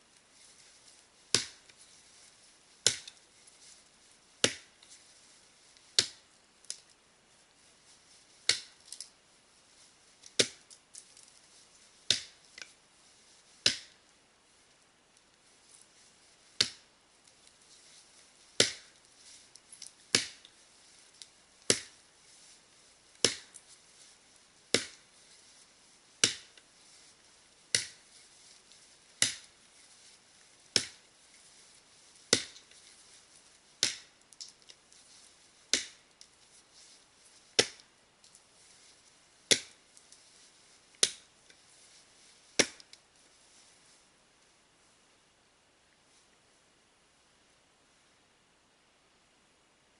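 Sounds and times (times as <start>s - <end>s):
axe chopping into tree trunk: 1.3s - 1.6s, 2.8s - 3.1s, 4.4s - 4.7s, 6.0s - 6.2s, 8.5s - 8.7s, 10.4s - 10.6s, 12.1s - 12.4s, 13.6s - 14.0s, 16.6s - 16.8s, 18.6s - 18.9s, 20.1s - 20.4s, 21.7s - 22.0s, 23.2s - 23.6s, 24.7s - 25.0s, 26.2s - 26.5s, 27.7s - 28.0s, 29.2s - 29.5s, 30.8s - 31.0s, 32.3s - 32.6s, 35.7s - 36.0s, 37.6s - 37.8s, 39.5s - 39.8s, 42.6s - 42.9s.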